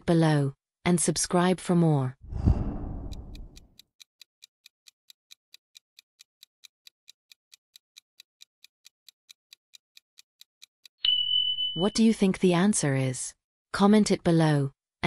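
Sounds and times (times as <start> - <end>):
whooshing noise: 2.2 - 3.6
clock ticking: 2.8 - 11.0.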